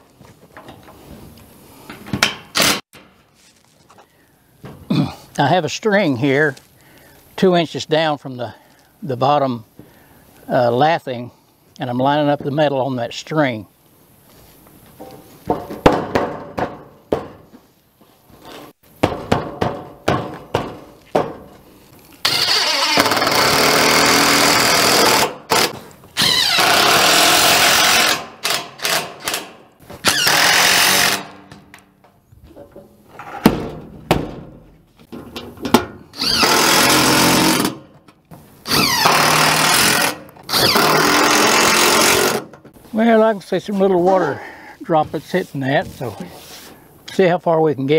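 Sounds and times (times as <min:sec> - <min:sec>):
screw gun driving screws: 0:02.5 - 0:02.8, 0:22.2 - 0:31.4, 0:36.2 - 0:37.8, 0:38.7 - 0:42.5
metal sheet knocks and rattles: 0:15.0 - 0:17.5, 0:19.0 - 0:21.5, 0:32.5 - 0:36.0.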